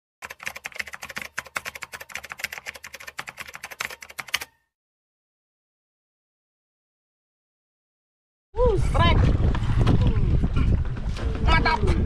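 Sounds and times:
rapid keystroke clicks: 0:00.2 - 0:04.5.

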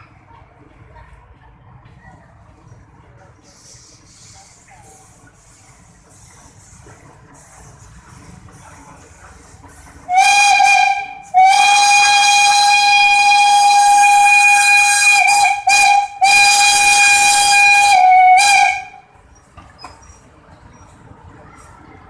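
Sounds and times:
steam locomotive whistle blowing: 0:10.1 - 0:19.1.

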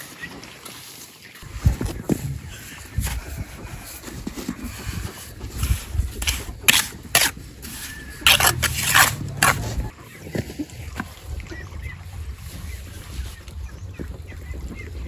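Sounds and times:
trowel scraping mortar: 0:03.0 - 0:09.9.

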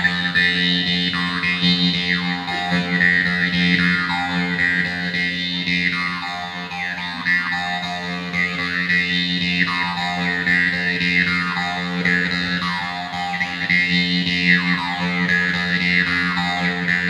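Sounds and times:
jaw harp buzzing drone: 0:00.0 - 0:17.0.

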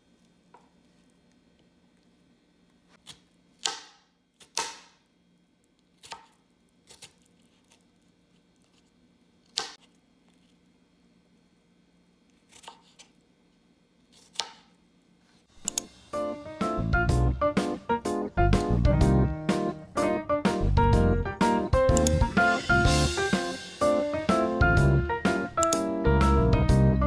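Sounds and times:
knife cutting on wooden board: 0:12.4 - 0:13.1.

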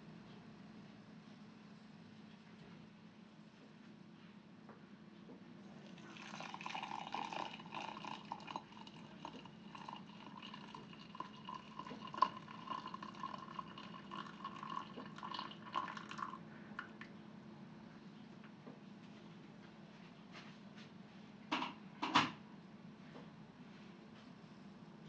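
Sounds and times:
water pouring into a mug: 0:05.7 - 0:16.4
water dripping: 0:06.1 - 0:17.1.

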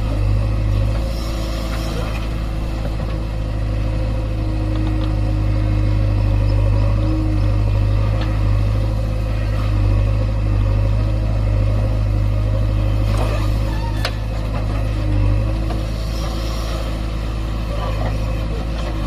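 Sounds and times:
diesel engine under load: 0:00.0 - 0:19.0.

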